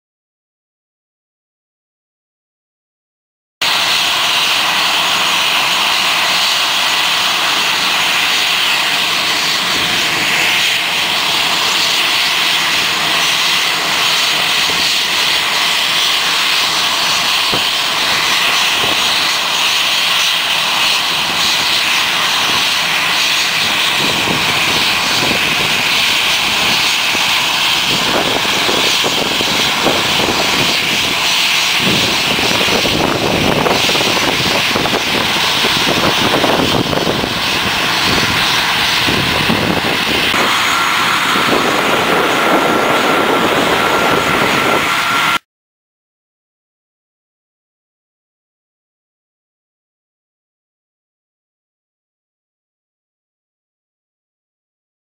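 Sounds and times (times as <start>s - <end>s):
jet engines at takeoff power: 3.6s - 45.5s.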